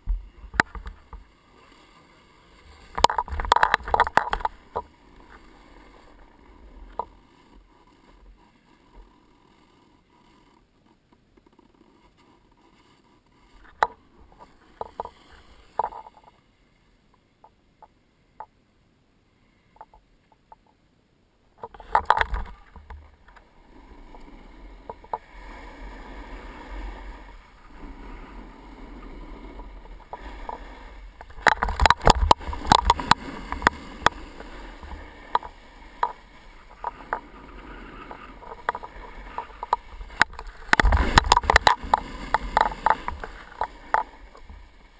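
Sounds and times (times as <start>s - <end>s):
snowboard scraping on snow: 1.0s - 3.0s, 4.5s - 10.7s, 22.5s - 44.9s.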